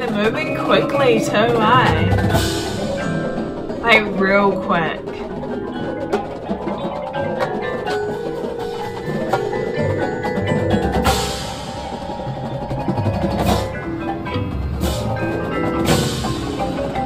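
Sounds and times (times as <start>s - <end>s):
mallet percussion and chimes: 0.0s - 17.0s
cymbal crash: 11.0s - 17.0s.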